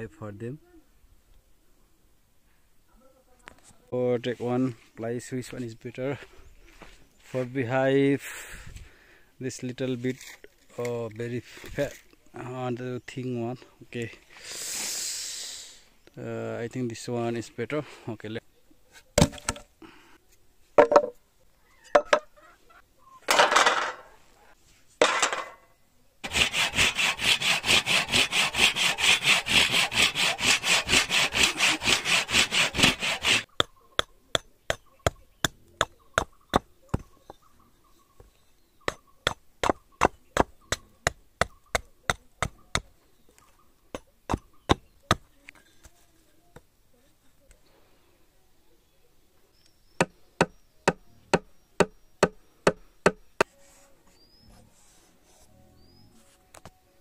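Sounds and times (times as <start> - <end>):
sharp regular wooden knocks: 20.8 - 21.2, 22.0 - 22.3
wooden boards knocked: 20.8 - 21.2, 22.0 - 22.3
handsaw cutting wood: 26.2 - 33.5.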